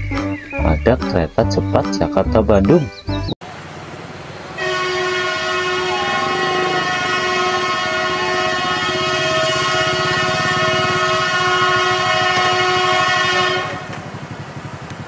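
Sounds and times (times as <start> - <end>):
train rumbling on the line: 4.5 - 15.0
loud train horn chord: 4.6 - 14.0.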